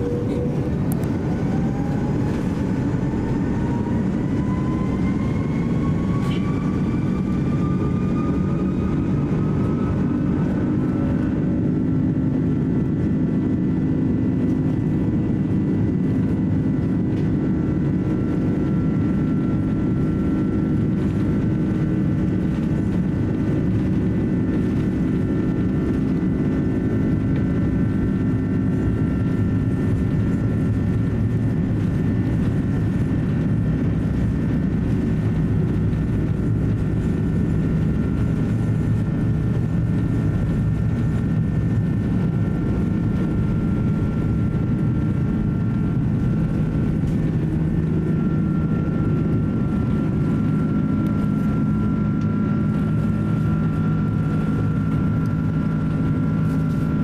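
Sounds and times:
high whine tones: 0:00.0 - 0:11.9
aircraft cabin rumble: 0:00.0 - 0:57.0.

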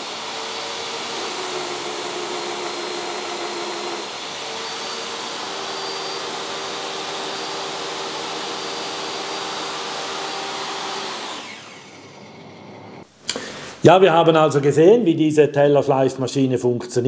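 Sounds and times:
dust extractor running: 0:00.0 - 0:13.1
table saw motor whining: 0:00.0 - 0:13.1.

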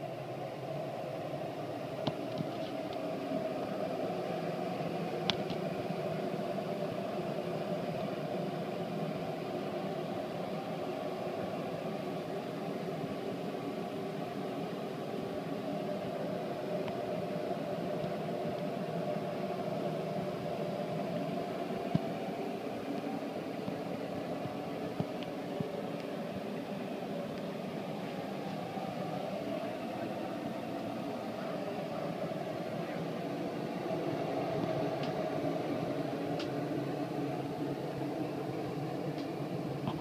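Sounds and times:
mechanical hum: 0:00.0 - 0:40.0.

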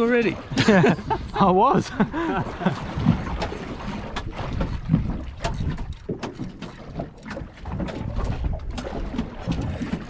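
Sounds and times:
waves slapping against boat hull: 0:00.0 - 0:10.0
wind buffeting microphone: 0:00.0 - 0:10.0
sharp knocks and clicks: 0:03.3 - 0:10.0.

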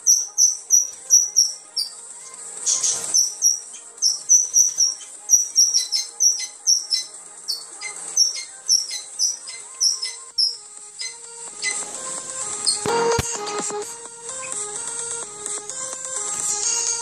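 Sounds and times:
rapid high-pitched bird chirping: 0:00.0 - 0:11.9, 0:12.6 - 0:12.9
faint music: 0:00.0 - 0:17.0.

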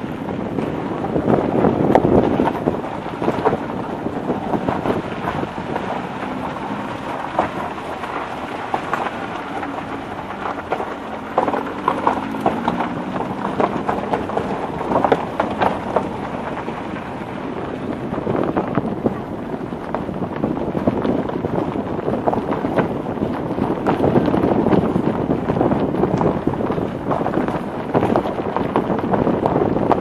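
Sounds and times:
car knocking and rattling: 0:00.0 - 0:30.0
tyres rumbling on gravel: 0:00.0 - 0:30.0.

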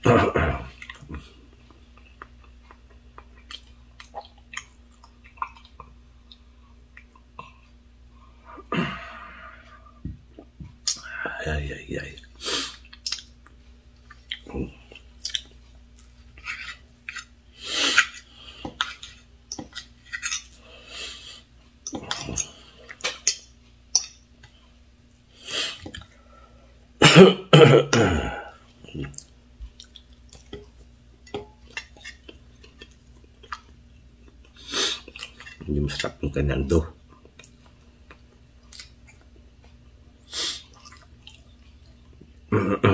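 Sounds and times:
person coughing: 0:00.0 - 0:00.8, 0:27.0 - 0:28.6, 0:42.5 - 0:42.9
person chewing: 0:00.6 - 0:07.8, 0:12.2 - 0:24.7, 0:28.4 - 0:36.1, 0:37.1 - 0:42.4.

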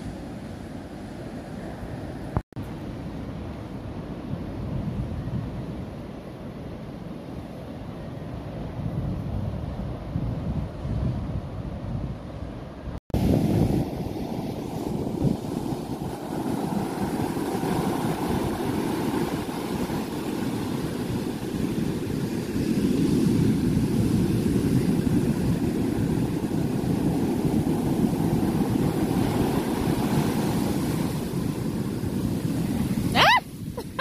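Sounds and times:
ocean waves breaking: 0:12.4 - 0:34.0.

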